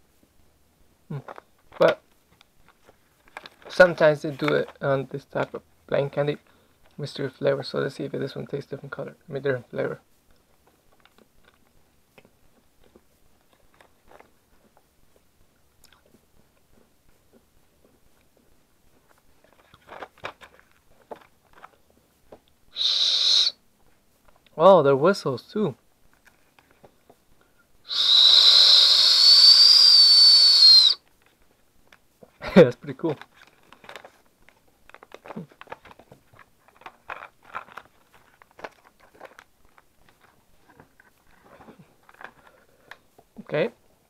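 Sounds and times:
faint small clicks and crackles: 0:01.2 - 0:03.7, 0:10.2 - 0:22.6, 0:26.0 - 0:27.6, 0:33.0 - 0:43.4
high breathy candy whistle: 0:22.7 - 0:23.6, 0:27.8 - 0:31.0.

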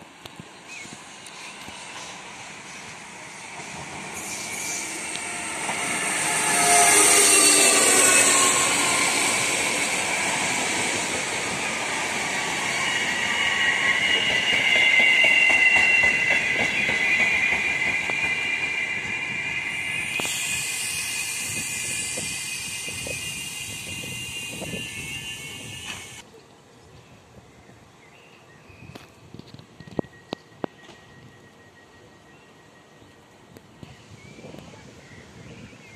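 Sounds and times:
electric train running: 0:01.7 - 0:26.2
steel wheels squealing: 0:04.1 - 0:26.2.

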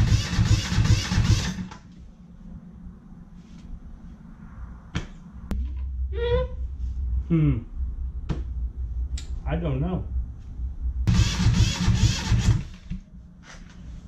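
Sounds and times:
short vocal sound: 0:07.2 - 0:07.8
diesel engine cranking on starter: 0:11.1 - 0:13.0.

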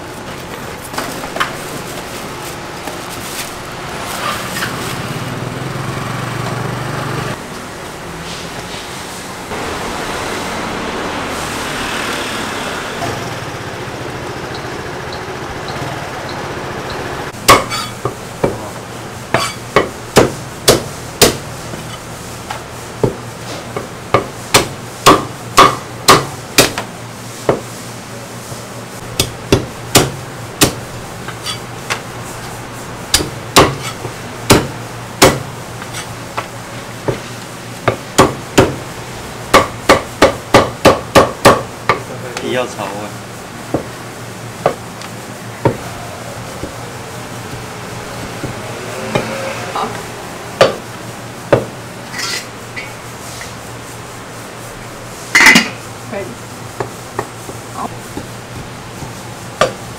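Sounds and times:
steady background noise: 0:00.0 - 0:59.9
cleaver chopping on wooden block: 0:19.3 - 0:21.4, 0:23.8 - 0:26.8, 0:29.2 - 0:30.8, 0:33.1 - 0:35.5, 0:37.8 - 0:38.8, 0:39.5 - 0:42.0, 0:50.6 - 0:50.8.

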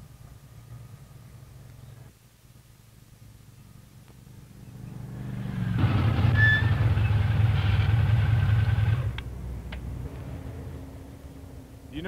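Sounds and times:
motorcycle engine running: 0:03.5 - 0:09.2.

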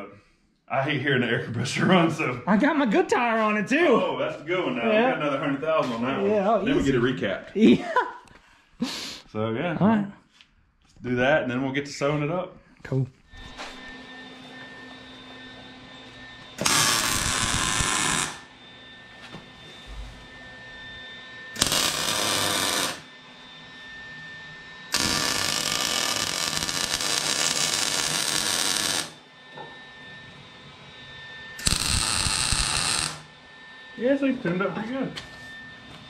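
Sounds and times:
welder arc crackle: 0:16.6 - 0:18.5, 0:21.6 - 0:23.1, 0:24.9 - 0:29.2, 0:31.6 - 0:33.3.

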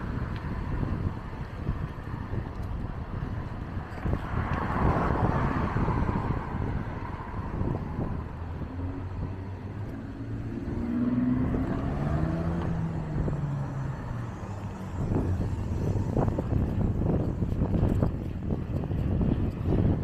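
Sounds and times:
cars passing: 0:00.0 - 0:20.0
vehicle engine hum: 0:00.0 - 0:20.0
wind rumble on microphone: 0:00.0 - 0:20.0.

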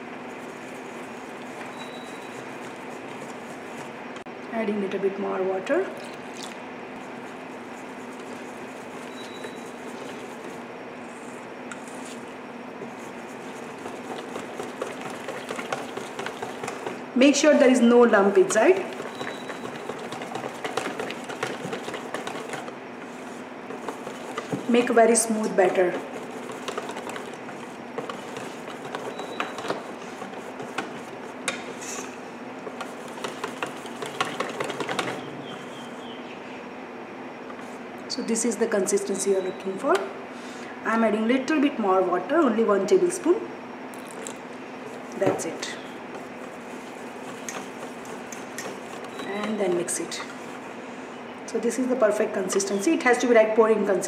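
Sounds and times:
whisk squishing batter: 0:00.0 - 0:04.0, 0:06.2 - 0:36.0, 0:44.0 - 0:50.8
steady low hum: 0:00.0 - 0:54.0
whisk clicking against bowl: 0:13.3 - 0:17.0, 0:18.1 - 0:31.6, 0:32.6 - 0:35.6, 0:46.0 - 0:50.5.

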